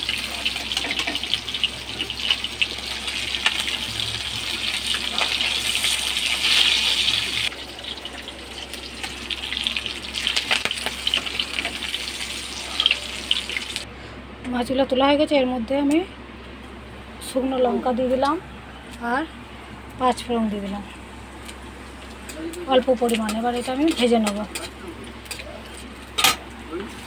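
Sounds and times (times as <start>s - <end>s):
fish sizzling in hot oil: 0.0s - 13.8s.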